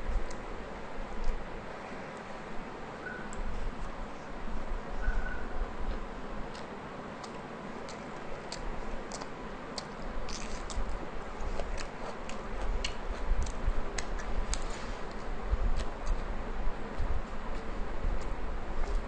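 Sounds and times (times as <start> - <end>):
wet eating clicks and smacks: 6.5 - 16.3.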